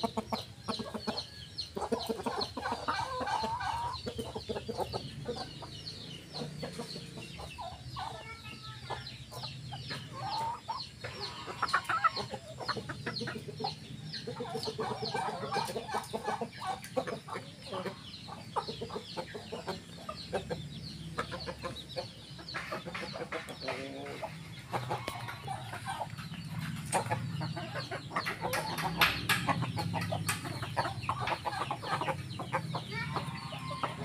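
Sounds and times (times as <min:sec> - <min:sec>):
chickens clucking: 0:00.0 - 0:34.0.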